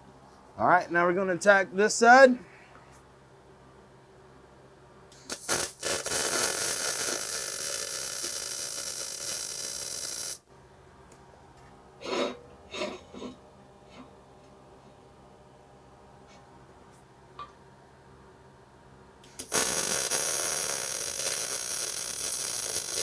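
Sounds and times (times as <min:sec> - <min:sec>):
welding arc sputtering and hissing: 0:05.1 - 0:10.5, 0:19.2 - 0:23.0.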